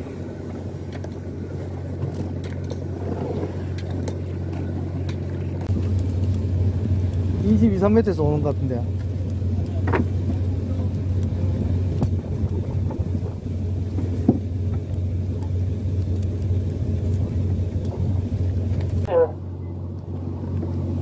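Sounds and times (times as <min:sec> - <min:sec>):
boat engine humming: 0:00.0 - 0:21.0.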